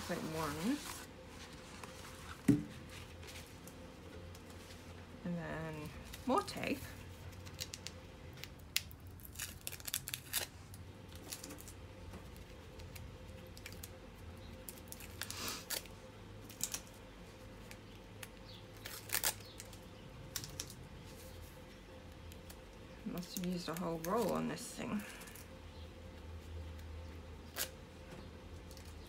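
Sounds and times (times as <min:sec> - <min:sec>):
packing tape ripping off: 0:18.8 - 0:19.8.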